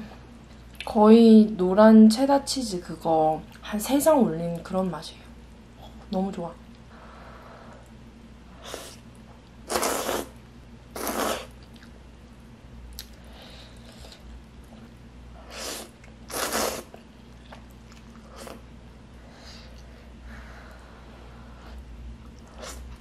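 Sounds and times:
person slurping noodles: 9.7s - 10.3s, 11.0s - 11.5s, 15.5s - 17.0s.

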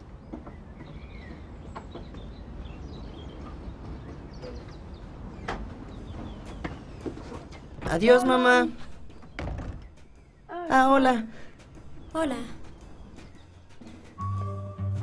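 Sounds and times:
birds chirping: 0.0s - 14.5s
doors shutting and opening: 5.4s - 10.4s.

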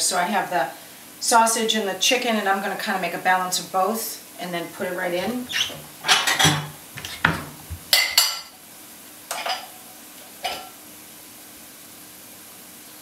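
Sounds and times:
dishware knocks and clinks: 5.2s - 8.5s.

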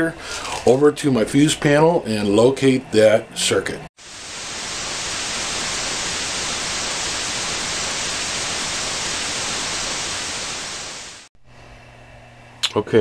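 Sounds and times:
television static hiss: 4.0s - 11.3s.

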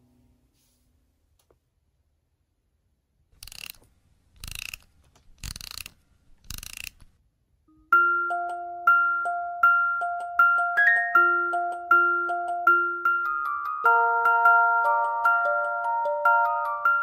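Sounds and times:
music box winding ratchet: 3.4s - 3.8s, 4.4s - 7.1s.

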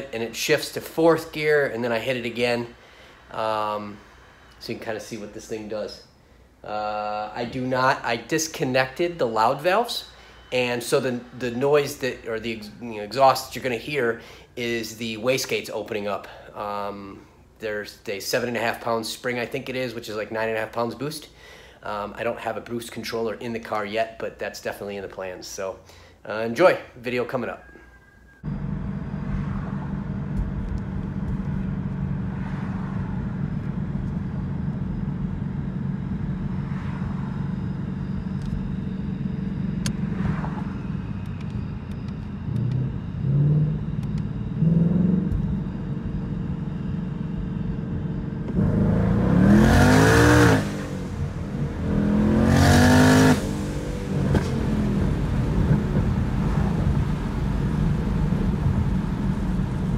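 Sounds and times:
full-throttle engine pulls: 27.6s - 59.9s
car engine running: 28.4s - 59.9s
turbo rushing whoosh: 36.1s - 41.8s.

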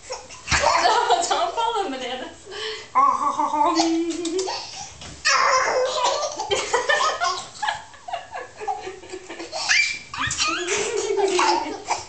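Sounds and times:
young children laughing and squealing: 8.6s - 12.0s.

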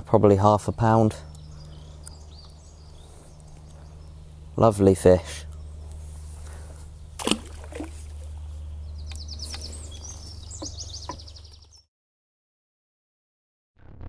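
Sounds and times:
steady low hum: 0.0s - 11.8s
songbird trilling: 0.6s - 7.2s, 8.0s - 11.8s.

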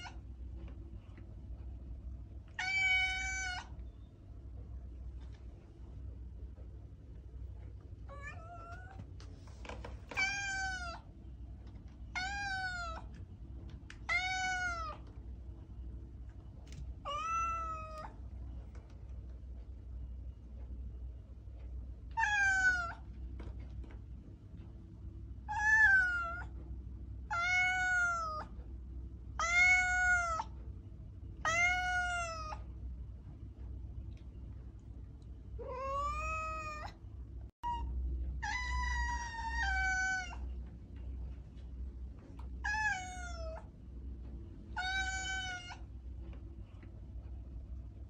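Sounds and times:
cat meowing: 2.5s - 3.8s, 8.1s - 9.0s, 10.1s - 11.1s, 12.1s - 13.2s, 14.0s - 15.1s, 17.0s - 18.2s, 22.2s - 23.0s, 25.5s - 26.5s, 27.3s - 28.5s, 29.4s - 30.5s, 31.4s - 32.6s, 35.6s - 37.0s, 37.6s - 40.5s, 42.6s - 43.7s, 44.8s - 45.9s.

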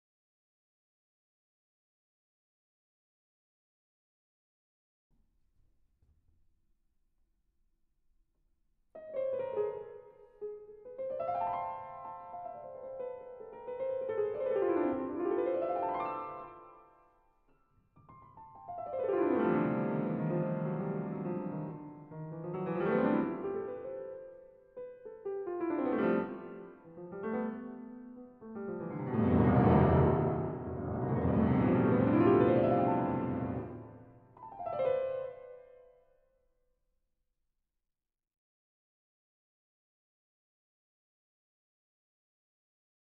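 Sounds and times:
grand piano runs: 28.8s - 33.9s.

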